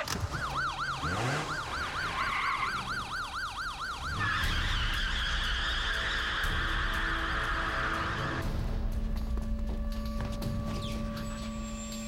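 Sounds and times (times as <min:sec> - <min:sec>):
police siren yelping: 0:00.0 - 0:08.1
car pulling away rushing: 0:00.2 - 0:03.2.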